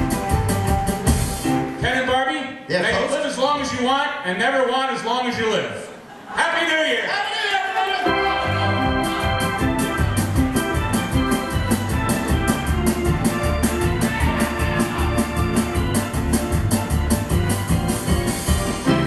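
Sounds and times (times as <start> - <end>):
upbeat music with bass line: 0.0 - 1.7, 8.1 - 19.0.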